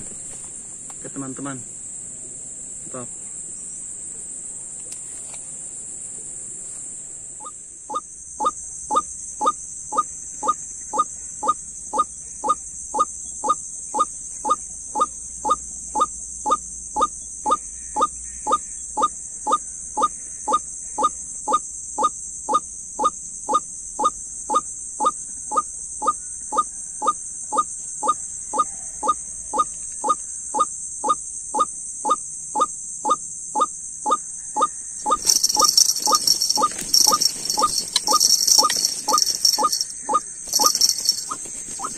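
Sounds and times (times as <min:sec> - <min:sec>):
waterhen calling: 0:35.1 - 0:41.9.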